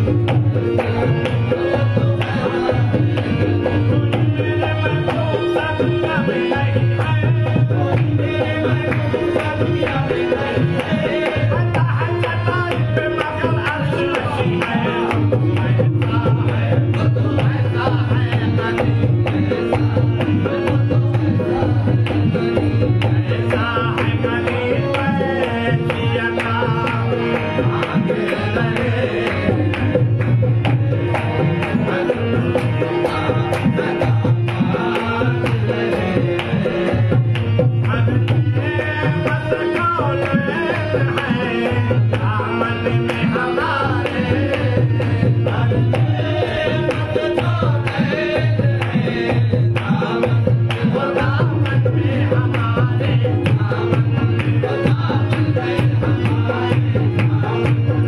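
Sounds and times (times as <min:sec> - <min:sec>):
tabla drumming: 0:00.0 - 0:58.0.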